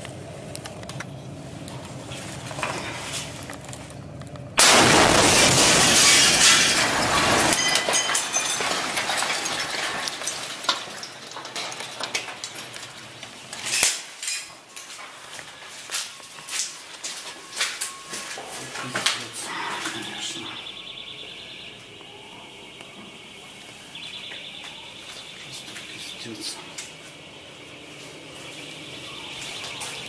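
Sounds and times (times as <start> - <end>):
loud explosion blast: 4.6 - 7.5
glass shattering: 4.6 - 15.0
debris rattling down: 4.6 - 15.2.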